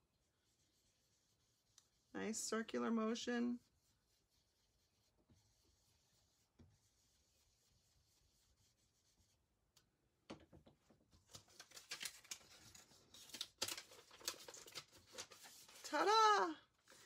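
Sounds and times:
brush rubbing on paper: 0.0 - 9.5, 14.5 - 17.0
paper rustling and crackling: 11.2 - 16.2.

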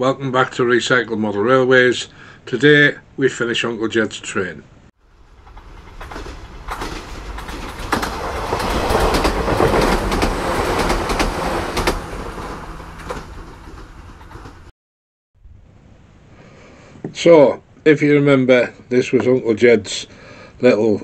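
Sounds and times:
train wheels clickety-clack: 5.2 - 14.7.

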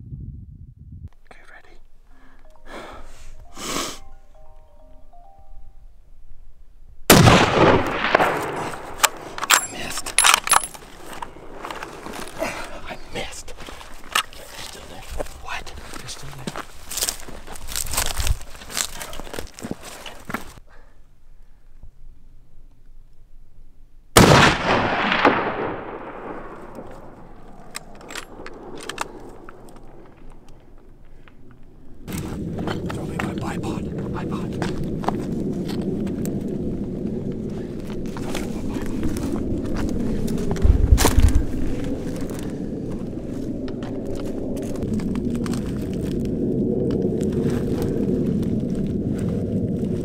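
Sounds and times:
rifle shot echoing: 7.1 - 10.7, 24.2 - 30.5.

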